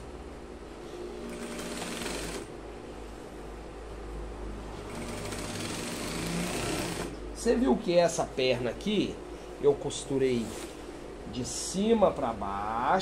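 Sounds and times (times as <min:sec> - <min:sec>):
sewing machine stitching: 0:01.3 - 0:02.5, 0:04.9 - 0:07.1.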